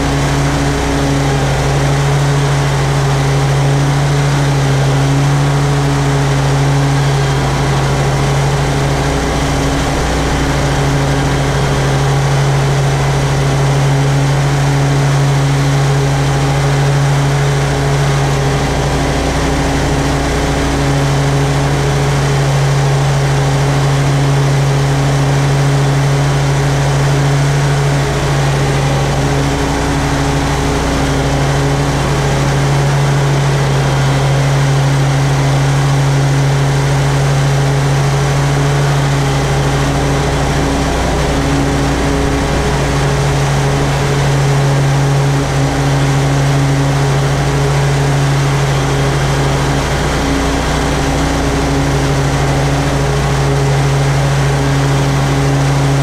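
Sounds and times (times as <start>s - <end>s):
lawn mower engine humming: 0.0s - 56.0s.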